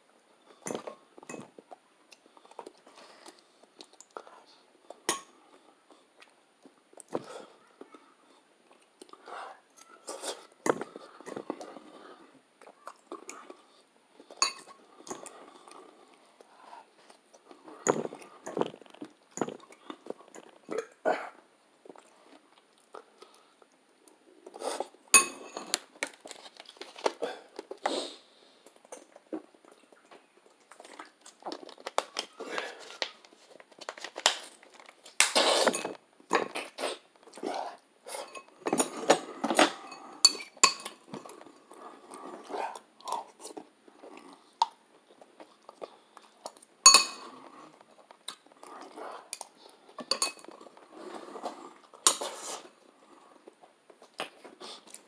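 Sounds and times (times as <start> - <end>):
fork clinking on dish: 46.9 - 47.3.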